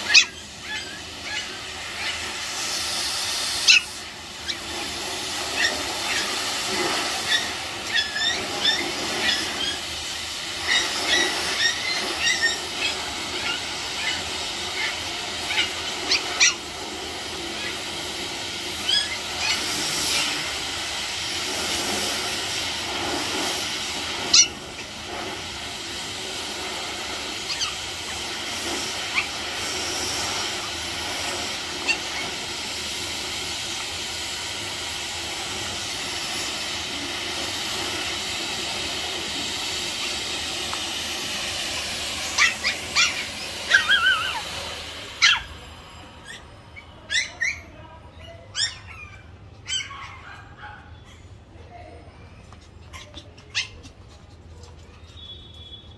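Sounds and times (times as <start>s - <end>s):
puppies yapping: 0.0s - 2.6s, 3.5s - 19.9s, 24.2s - 25.2s, 26.8s - 32.7s, 39.7s - 51.4s, 52.4s - 55.7s.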